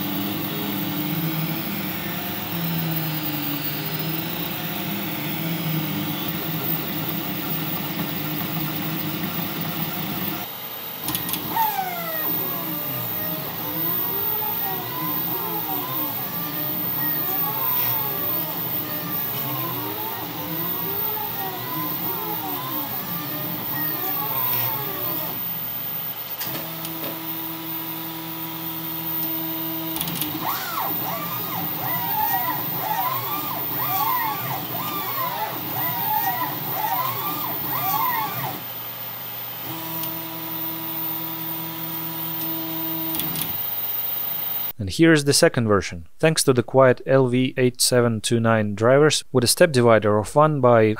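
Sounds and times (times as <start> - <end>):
stepper motors whining: 0.0 - 38.8, 39.4 - 44.7
cooling fans rushing: 0.0 - 40.4
steady pitched hum: 0.0 - 40.9.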